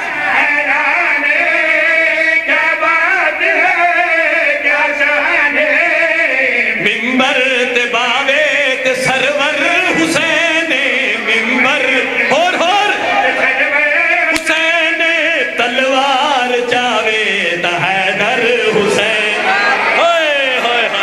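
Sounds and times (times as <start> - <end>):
men chanting into microphones: 0.0 - 21.0.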